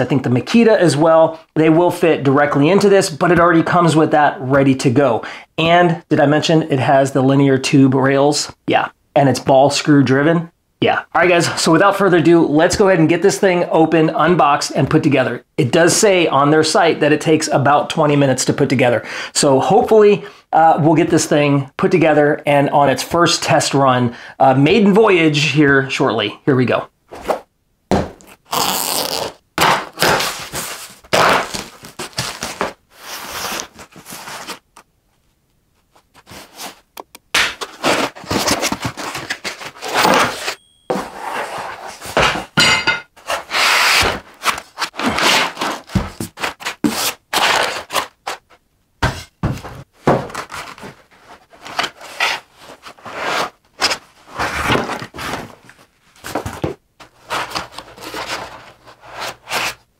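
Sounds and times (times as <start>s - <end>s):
cardboard and foam scraping: 28.5s - 34.6s, 37.6s - 42.3s, 43.2s - 49.2s, 50.0s - 59.8s.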